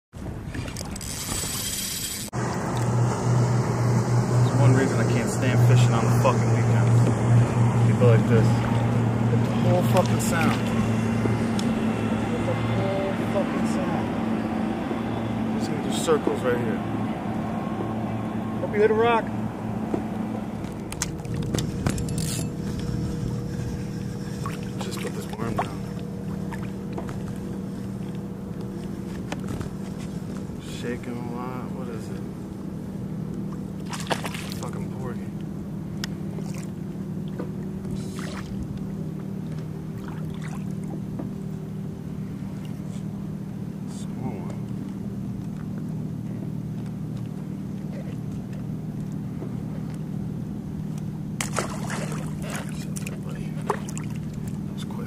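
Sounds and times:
motorboat engine droning: 0:00.2 - 0:55.0
steady low hum: 0:00.2 - 0:55.0
waves lapping against kayak: 0:20.1 - 0:30.7, 0:33.5 - 0:35.0, 0:36.2 - 0:43.9, 0:51.4 - 0:55.0.

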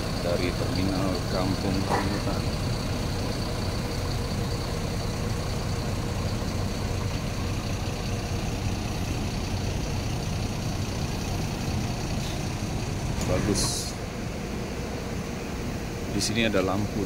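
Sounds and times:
diesel engine idling: 0:00.0 - 0:17.0.

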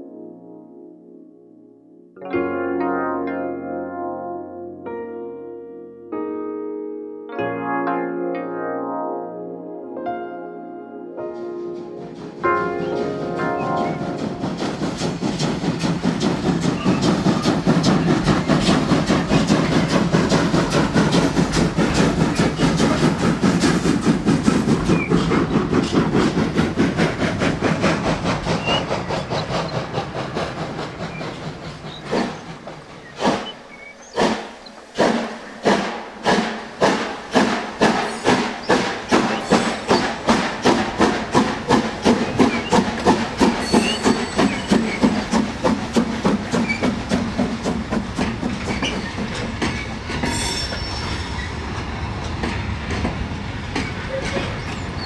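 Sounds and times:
steam locomotive chuffs: 0:11.7 - 0:55.0
steam locomotive exhaust beats: 0:11.7 - 0:55.0.

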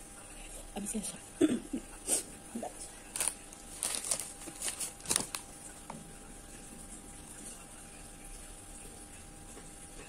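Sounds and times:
tissue paper rustling: 0:03.1 - 0:05.5.

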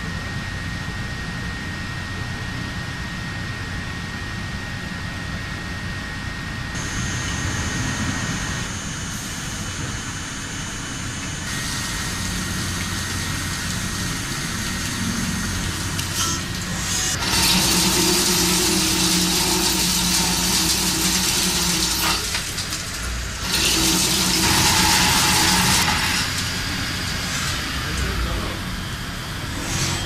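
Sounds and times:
lathe machining metal: 0:06.8 - 0:30.0.

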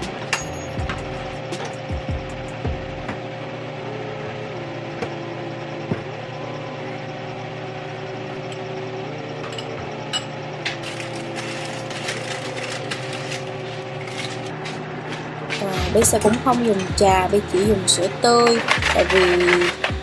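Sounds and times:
steady hum: 0:00.0 - 0:20.0
utensils clicking against bowls: 0:09.5 - 0:20.0.

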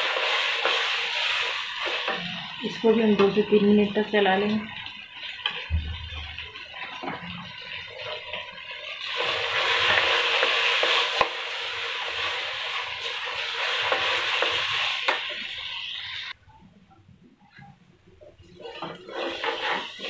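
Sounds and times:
oil sizzling: 0:00.0 - 0:16.4, 0:18.4 - 0:20.0
spatula scraping rice in pot: 0:18.6 - 0:20.0.

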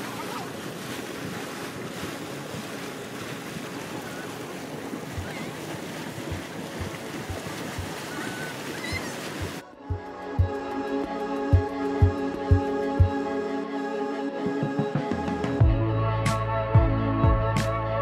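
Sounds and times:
soft low thumps: 0:09.8 - 0:10.6.

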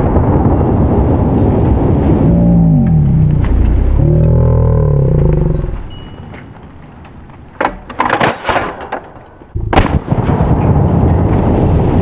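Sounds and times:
shotgun fire: 0:09.6 - 0:10.9.

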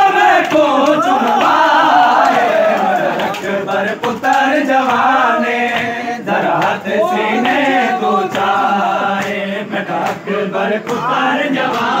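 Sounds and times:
men chanting a mourning lament: 0:00.0 - 0:12.0
hands slapping bare chests: 0:00.3 - 0:08.6.

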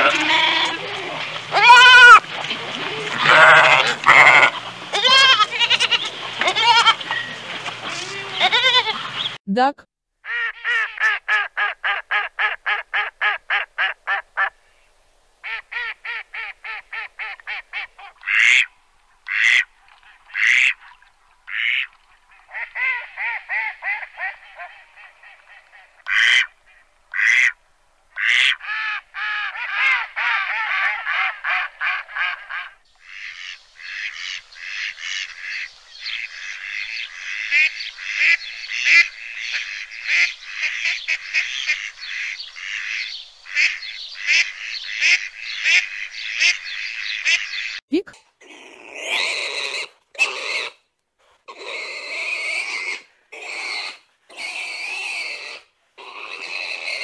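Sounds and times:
ducks quacking: 0:00.0 - 0:09.4, 0:10.3 - 0:14.5, 0:15.4 - 0:20.9, 0:21.5 - 0:26.5, 0:27.1 - 0:27.6, 0:28.2 - 0:47.8.

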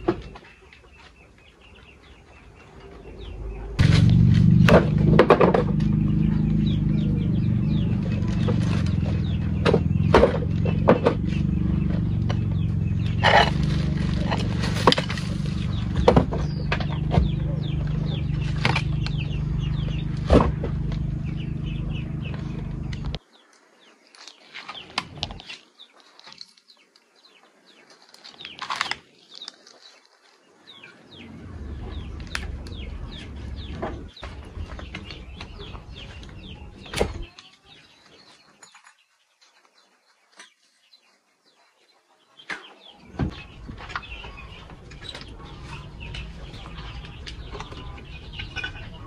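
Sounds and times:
birds chirping faintly: 0:00.0 - 0:49.0
steady low hum: 0:02.3 - 0:23.2
plastic and netting rustling: 0:13.2 - 0:15.9
bricks knocking and scraping: 0:13.2 - 0:17.4.

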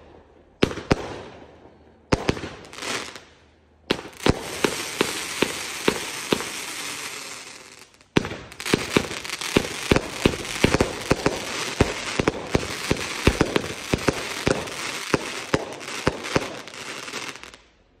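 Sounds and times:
crackling firework stars: 0:00.0 - 0:18.0
firework bangs: 0:02.1 - 0:03.3, 0:03.9 - 0:17.6.

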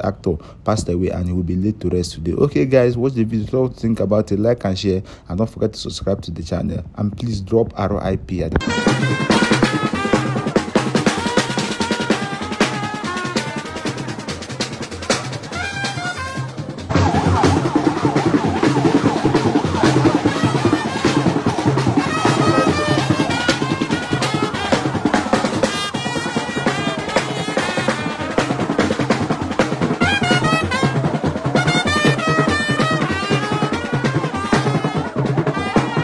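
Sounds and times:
drum beat: 0:08.6 - 0:36.0.

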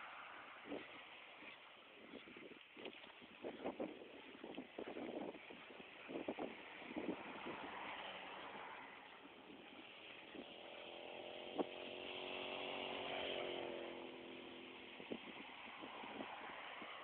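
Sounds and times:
engine hum passing by: 0:00.0 - 0:01.4, 0:06.5 - 0:17.0
bicycle tyres rolling on asphalt: 0:00.0 - 0:17.0
wind noise: 0:00.0 - 0:17.0.

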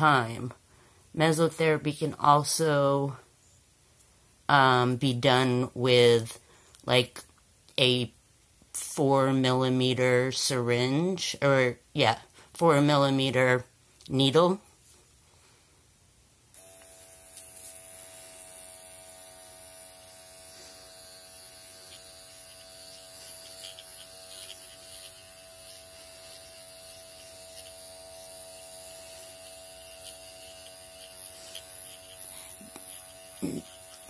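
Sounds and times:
microneedling pen humming: 0:16.5 - 0:34.0.

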